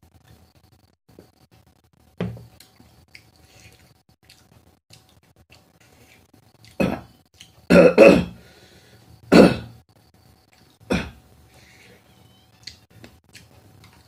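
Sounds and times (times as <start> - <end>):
man clearing his throat: 6.8 - 7.1, 7.7 - 8.4, 9.3 - 9.8, 10.9 - 11.2
man coughing: 7.7 - 8.4, 9.3 - 9.7.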